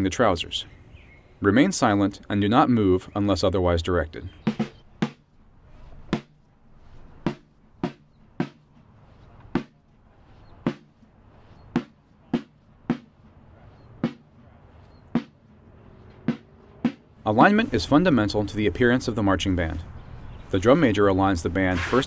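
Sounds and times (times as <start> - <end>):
drum strokes in march rhythm: 4.4 - 18.0, 21.7 - 22.0.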